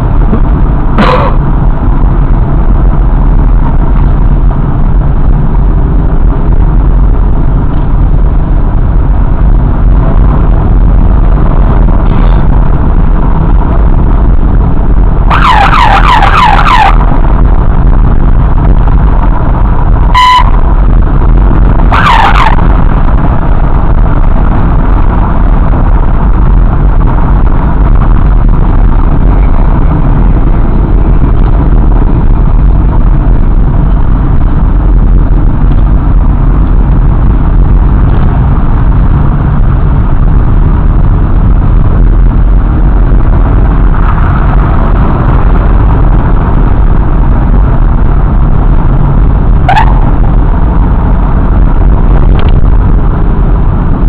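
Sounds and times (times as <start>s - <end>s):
wind and engine noise: 0.0s - 54.0s
horn toot: 1.0s - 1.5s, 20.1s - 20.6s
police siren yelps: 15.2s - 17.1s, 20.2s - 20.6s, 21.8s - 22.7s, 49.7s - 50.1s.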